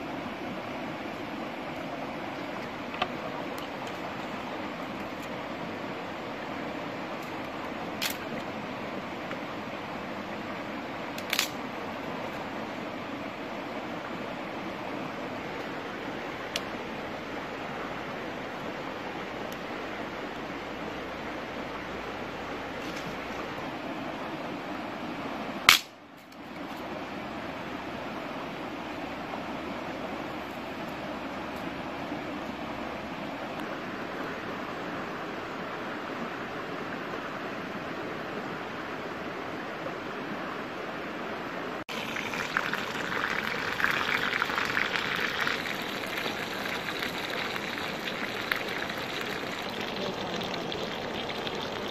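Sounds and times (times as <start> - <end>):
stream rushing over rocks: 0.0 - 25.9, 28.0 - 51.9
loud sharp crack: 25.7 - 26.0.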